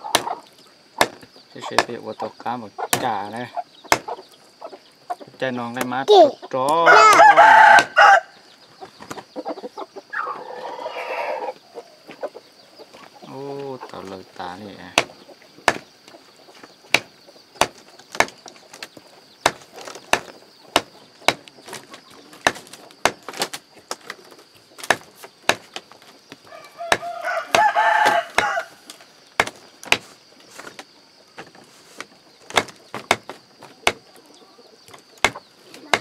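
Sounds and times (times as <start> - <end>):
cleaver chopping on wooden block: 0.0 - 0.4, 1.0 - 2.0, 2.9 - 3.3, 3.9 - 4.2, 14.9 - 15.9, 16.9 - 18.4, 19.4 - 21.5, 22.4 - 23.4, 24.8 - 25.8, 26.9 - 28.6, 29.4 - 30.1, 32.5 - 34.0, 35.2 - 36.0
rooster crowing: 6.8 - 8.4, 26.5 - 28.8.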